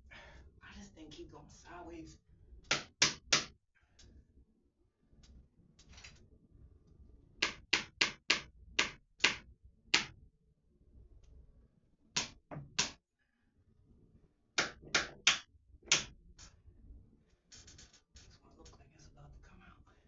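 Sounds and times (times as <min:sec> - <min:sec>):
hammer striking nail: 0:02.7 - 0:03.5, 0:07.4 - 0:09.4, 0:10.0 - 0:10.2, 0:12.2 - 0:13.0, 0:14.6 - 0:16.1.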